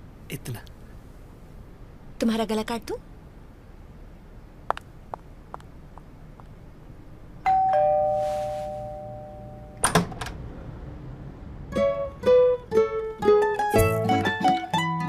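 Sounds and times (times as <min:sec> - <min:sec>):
two-note doorbell chime: 0:07.4 - 0:09.8.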